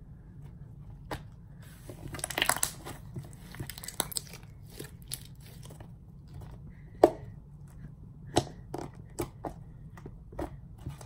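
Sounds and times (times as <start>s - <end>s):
slime clicking and popping: 2.2s - 2.8s, 3.6s - 4.4s.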